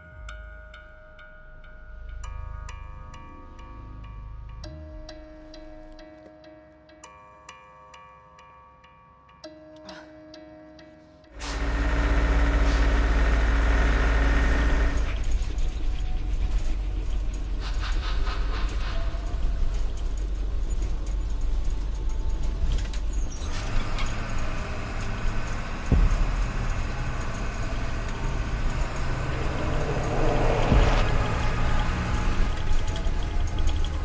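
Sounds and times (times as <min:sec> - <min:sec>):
bus engine and road rumble: 0:11.4 - 0:34.0.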